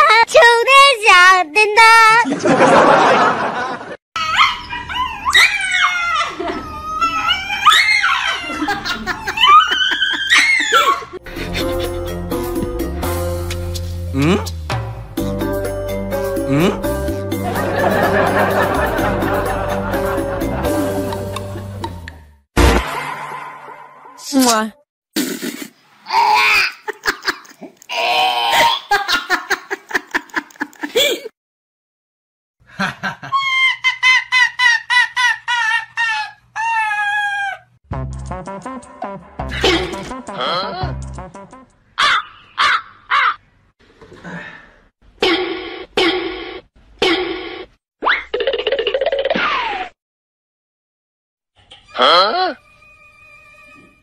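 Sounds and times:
dog howling and whining: 4.2s - 11.1s
person laughing: 8.4s - 12.2s, 14.2s - 14.4s, 16.5s - 16.9s, 17.5s - 22.0s, 26.6s - 27.8s, 28.6s - 31.3s, 39.5s - 41.0s.

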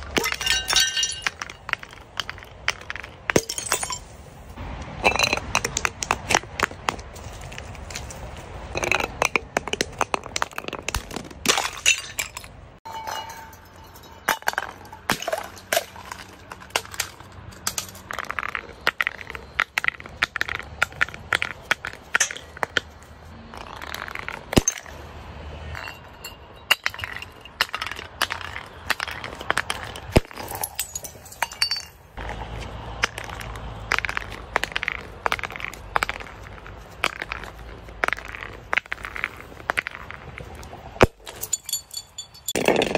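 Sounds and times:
glass bottles clinking on concrete: 0.0s - 4.2s, 5.0s - 5.9s, 8.7s - 10.8s, 11.4s - 22.6s, 25.7s - 32.2s, 41.0s - 42.9s.

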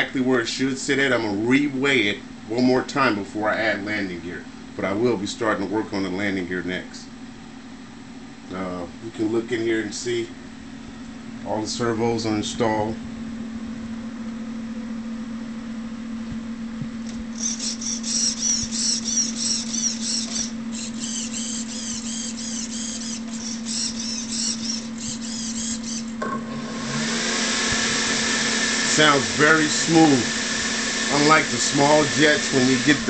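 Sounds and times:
electric ducted fans humming: 0.0s - 33.0s
rhythmic high chirping: 17.3s - 26.1s.

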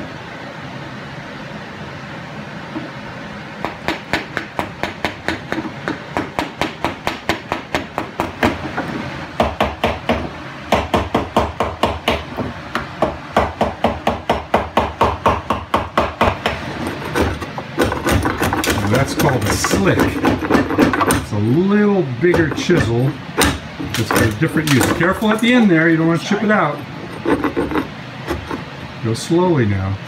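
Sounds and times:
wooden mallet striking chisel: 3.6s - 8.6s, 9.4s - 21.3s, 22.3s - 25.6s.

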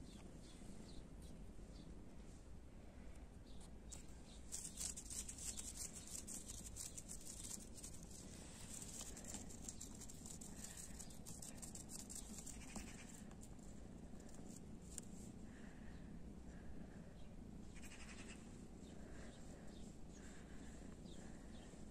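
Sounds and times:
high crackling rustle: 4.0s - 13.6s.

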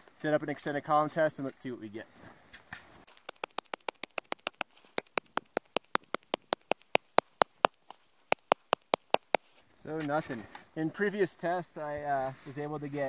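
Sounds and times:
gloved hand tapping shovel blade: 3.1s - 9.5s.

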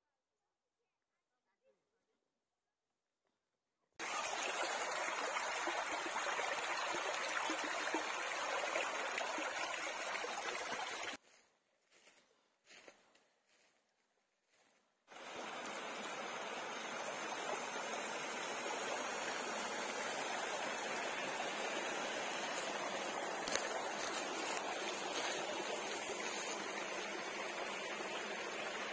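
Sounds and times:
brook running over stones: 4.0s - 11.2s, 15.1s - 28.9s.

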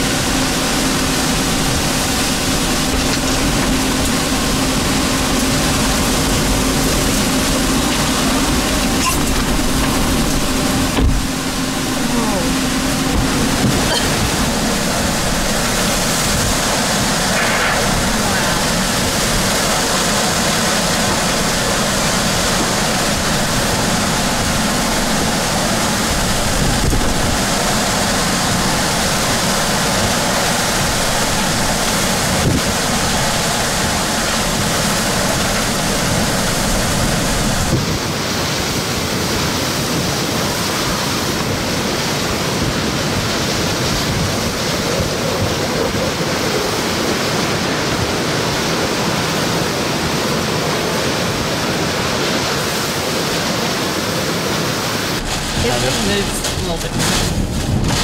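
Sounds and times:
low rumble: 0.0s - 37.8s, 55.1s - 58.0s
heavy driving rain: 0.0s - 58.0s
strong wind: 0.0s - 58.0s.

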